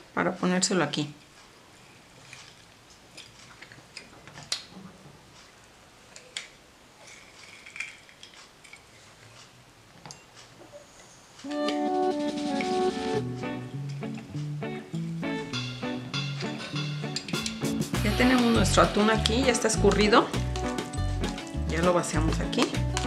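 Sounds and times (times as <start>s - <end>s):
background music: 11.4s - 23.0s.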